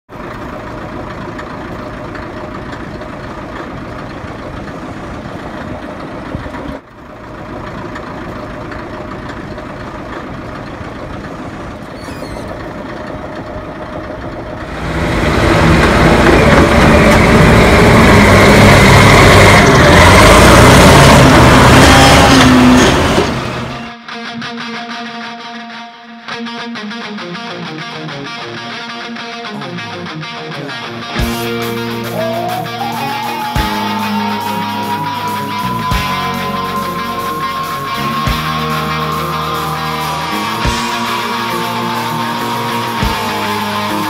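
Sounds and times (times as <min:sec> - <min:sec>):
heavy diesel engine running: 0:00.1 - 0:23.9, 0:30.6 - 0:44.0
music with guitar: 0:23.7 - 0:44.0.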